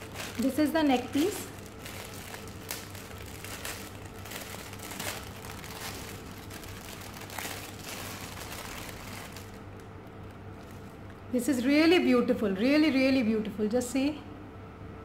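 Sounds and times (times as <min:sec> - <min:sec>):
plastic packaging crinkling: 0:00.0 - 0:11.3.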